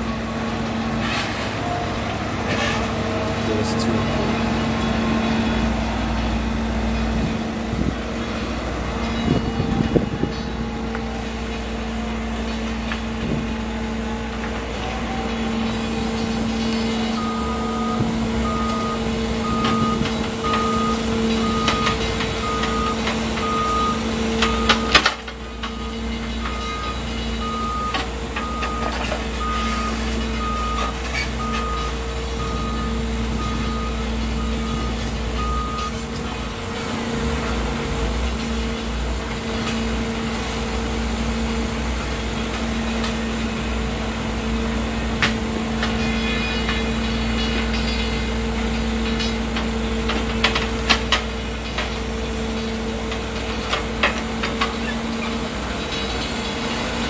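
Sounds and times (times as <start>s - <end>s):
diesel engine running: 0.0s - 57.0s
reversing alarm beeping: 14.0s - 36.4s.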